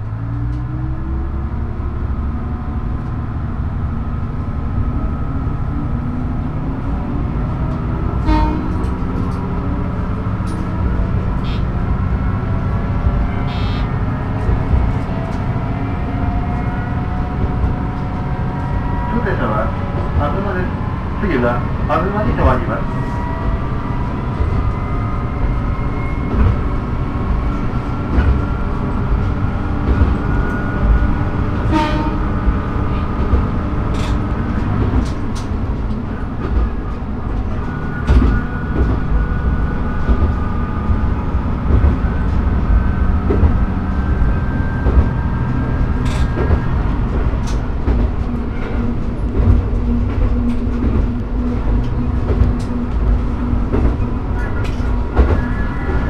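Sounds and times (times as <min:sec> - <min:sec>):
diesel railcar engine and rolling: 0:00.0 - 0:56.0
wheels clicking over rail joints: 0:33.2 - 0:36.7.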